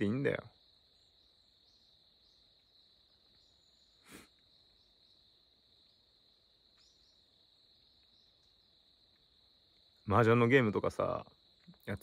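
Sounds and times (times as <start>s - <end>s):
crickets trilling: 0.0s - 12.0s
brief breath-like noise: 4.0s - 4.4s.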